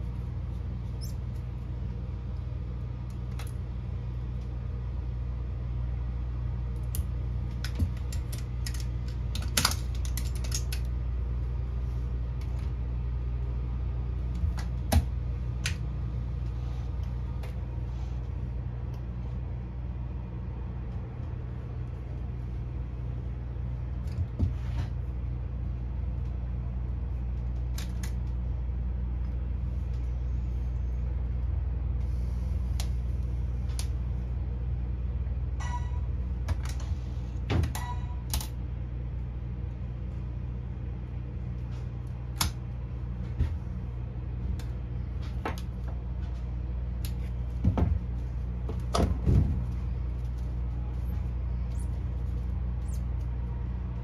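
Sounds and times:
low machine hum: 0:00.0 - 0:54.0
short beeps: 0:35.6 - 0:36.1.

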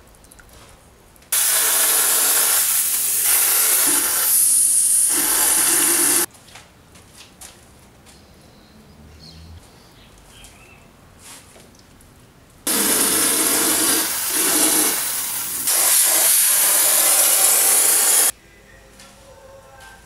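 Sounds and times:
pressurised spray hissing: 0:01.4 - 0:06.3, 0:12.7 - 0:18.3.

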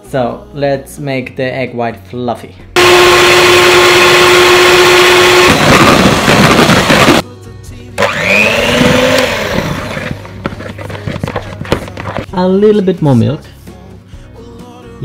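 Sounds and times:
electric hand mixer whirring: 0:02.8 - 0:07.2, 0:08.0 - 0:12.3.

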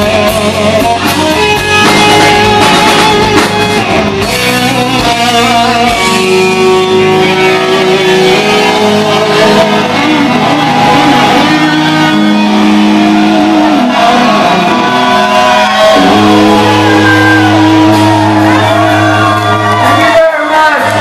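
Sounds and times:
rock band sustained chords: 0:00.0 - 0:21.0
people shouting: 0:07.1 - 0:21.0.

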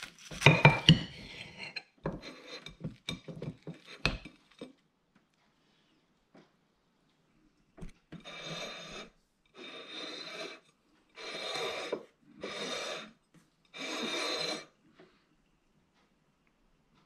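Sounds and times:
rasping rubbing strokes: 0:11.2 - 0:13.1, 0:13.8 - 0:14.7.

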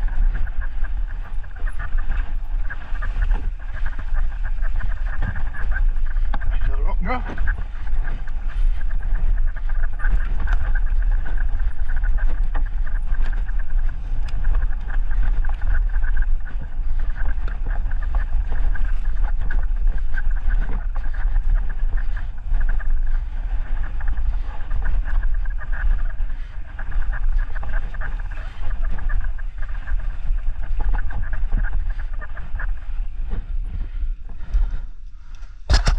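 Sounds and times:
wind rushing on microphone: 0:00.0 - 0:35.9
bike clattering over bumps: 0:35.7 - 0:35.9.

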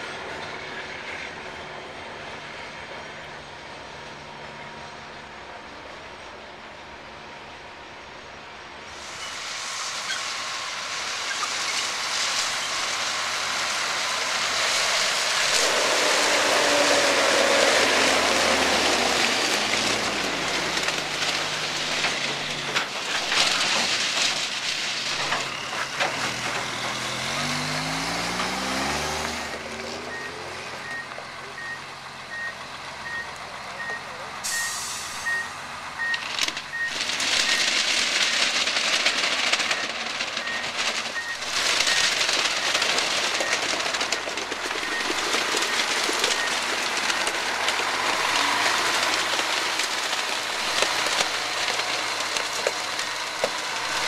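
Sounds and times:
heavy trucks driving past: 0:00.0 - 0:54.0
truck engine accelerating: 0:09.7 - 0:54.0
truck reversing beeper: 0:26.6 - 0:38.4, 0:39.5 - 0:50.1.

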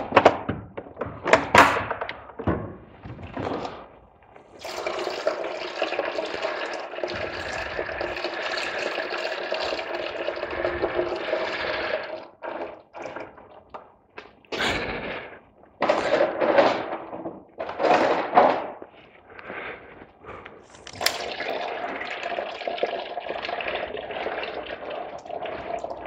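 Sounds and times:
liquid pouring: 0:04.5 - 0:13.7, 0:20.7 - 0:26.0.

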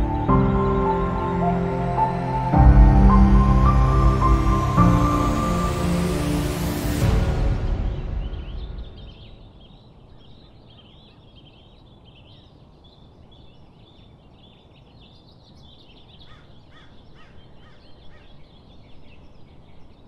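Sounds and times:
small birds chirping: 0:08.0 - 0:20.0.

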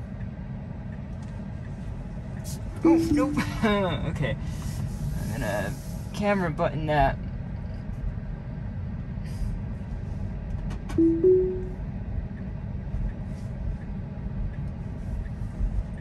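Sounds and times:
two-note car chime: 0:02.9 - 0:03.8, 0:11.0 - 0:11.8.

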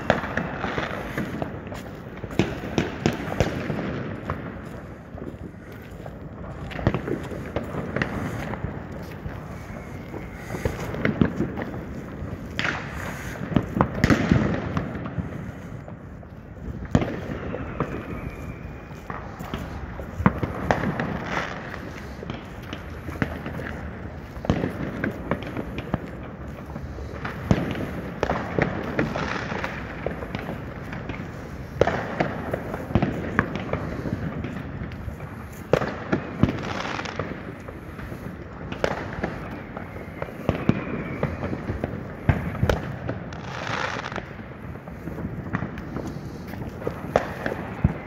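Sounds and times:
fireworks bangs and pops: 0:00.0 - 0:48.0.

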